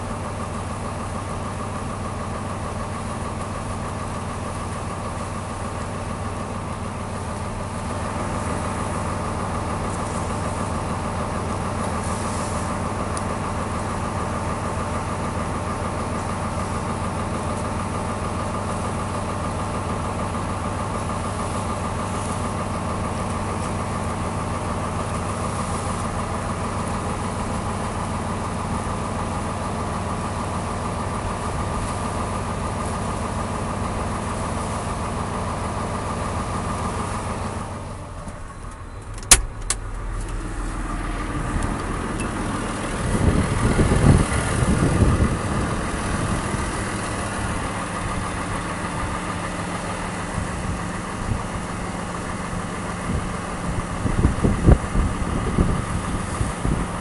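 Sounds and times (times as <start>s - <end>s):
engine idling hum: 0.0s - 57.0s
low rumbling: 20.6s - 57.0s
sharp click: 39.0s - 40.4s.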